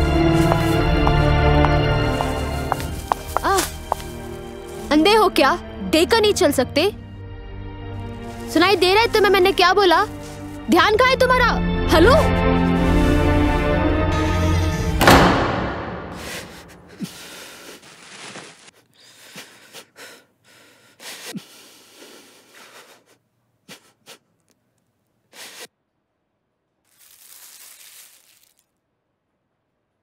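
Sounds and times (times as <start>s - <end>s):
background score with loud sting: 15.0s - 16.8s.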